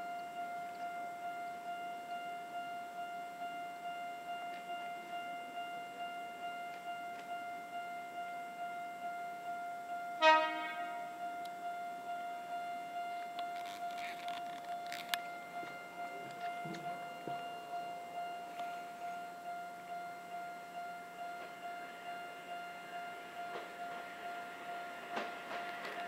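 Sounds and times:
level-crossing alarm clanging: 0:00.0 - 0:26.0
loud horn blast: 0:10.2 - 0:11.2.

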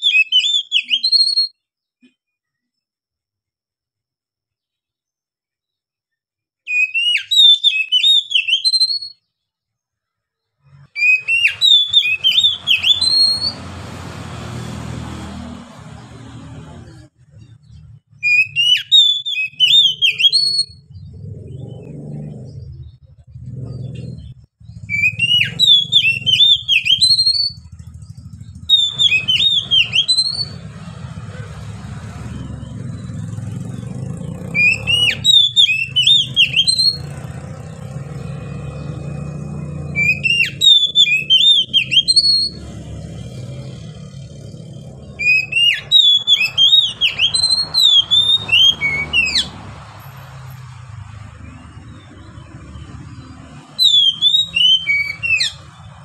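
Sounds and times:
bird singing whistled phrases: 0:00.0 - 0:01.7, 0:06.7 - 0:09.3, 0:10.9 - 0:13.6, 0:18.2 - 0:21.8, 0:24.7 - 0:30.6, 0:34.4 - 0:37.1, 0:39.9 - 0:42.7, 0:45.2 - 0:49.5, 0:52.1 - 0:55.7.

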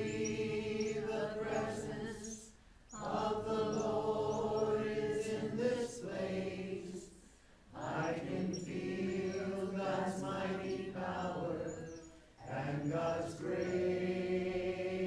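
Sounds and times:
group of voices chanting: 0:07.8 - 0:15.0.

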